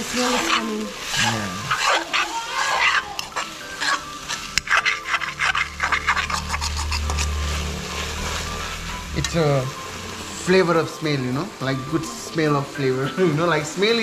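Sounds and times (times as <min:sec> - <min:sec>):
metal spatula scraping a pan: 0:00.0 - 0:10.8
low hum: 0:05.1 - 0:10.2.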